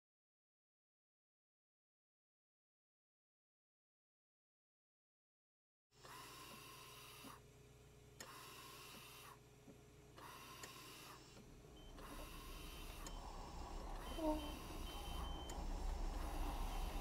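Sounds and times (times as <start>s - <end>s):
slow breathing: 10.2s - 17.0s
low steady hum: 11.2s - 17.0s.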